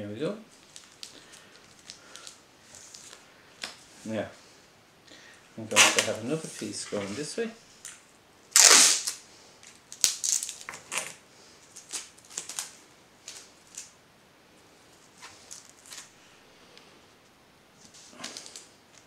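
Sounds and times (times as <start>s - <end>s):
sticky tape crackling: 0.6s - 3.8s, 5.7s - 14.0s, 15.2s - 16.1s.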